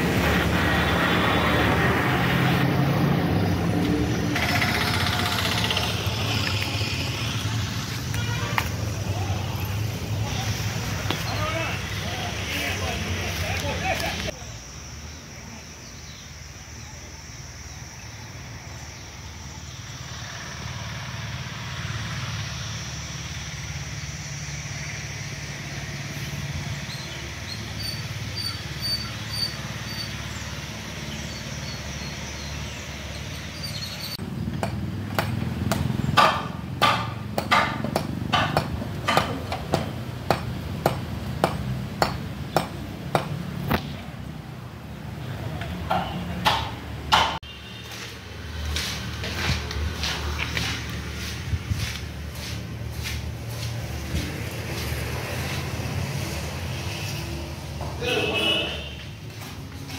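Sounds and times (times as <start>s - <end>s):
hammer striking stone: 34.6s - 43.3s, 45.9s - 47.4s.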